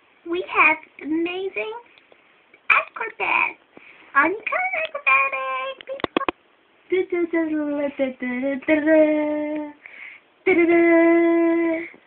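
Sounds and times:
person singing wordless tune: 0:06.9 - 0:09.8, 0:10.5 - 0:12.0.

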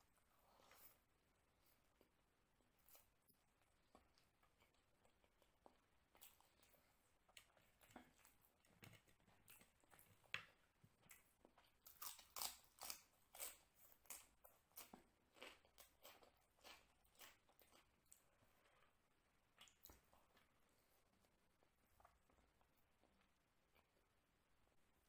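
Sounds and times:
close-up chewing: 0:02.8 - 0:18.9.

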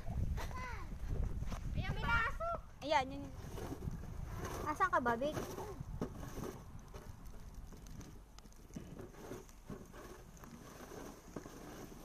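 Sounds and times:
snow shovels scraping snow: 0:03.2 - 0:07.1, 0:08.8 - 0:12.0.

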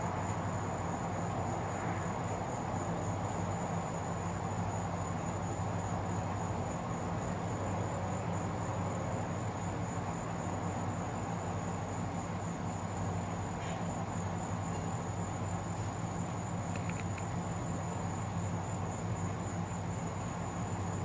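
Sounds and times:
constant low hum: 0:00.0 - 0:21.0
high-pitched insect trill: 0:00.2 - 0:21.0.

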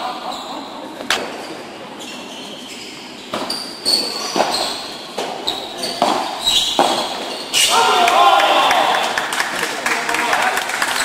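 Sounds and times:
shoe squeaks on court: 0:01.4 - 0:07.7.

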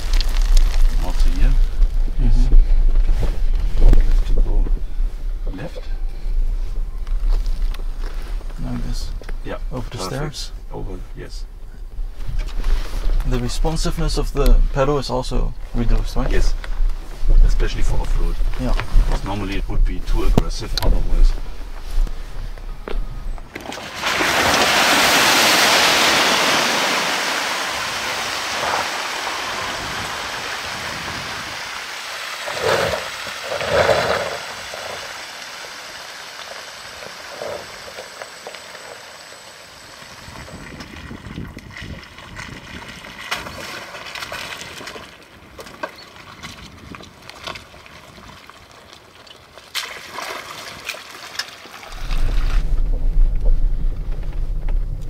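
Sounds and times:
low steady noise: 0:00.0 - 0:23.9, 0:51.9 - 0:55.0
vehicle splashing through water: 0:23.5 - 0:41.8
water sloshing: 0:40.9 - 0:55.0.

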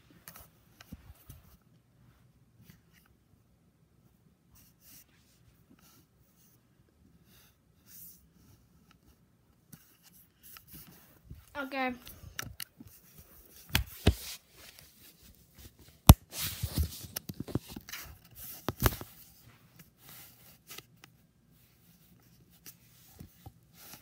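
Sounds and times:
camera handling knocks and scrapes: 0:13.6 - 0:14.4.

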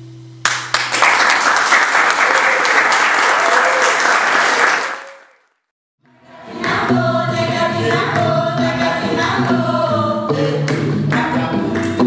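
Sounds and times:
applause: 0:00.4 - 0:05.6
women's choir singing: 0:06.1 - 0:12.0.

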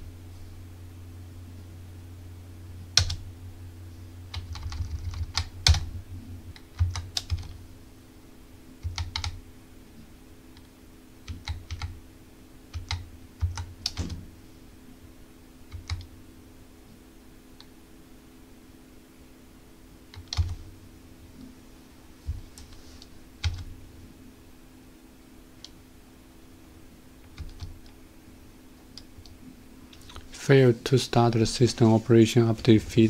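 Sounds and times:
faint low hum: 0:00.0 - 0:33.0
keyboard keystrokes: 0:12.7 - 0:14.2.

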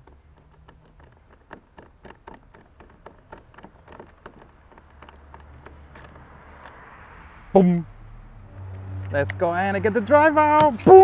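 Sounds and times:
small clicks and taps: 0:00.0 - 0:06.8.

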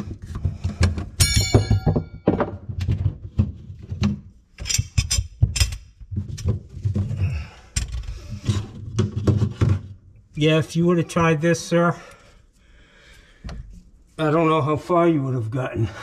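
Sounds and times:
knocks and thunks: 0:00.0 - 0:04.4
ringing metal clang: 0:01.2 - 0:02.4.

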